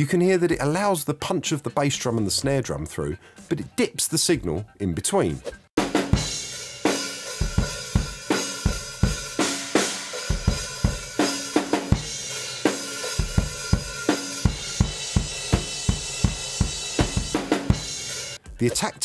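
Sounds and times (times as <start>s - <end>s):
drum kit playing steady beat: 5.8s - 19.0s.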